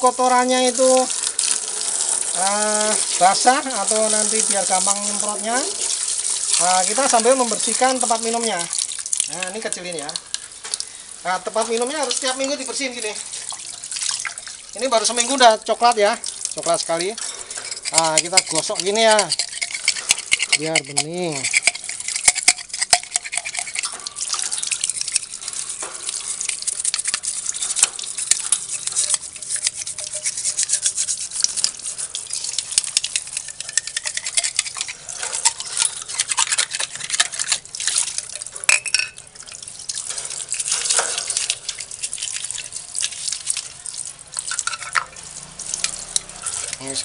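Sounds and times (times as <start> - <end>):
brush scrubbing plastic tube: 14.8 - 15.9, 16.6 - 38.7, 45.6 - 47.0
tap water splashing into basin: 31.4 - 47.0.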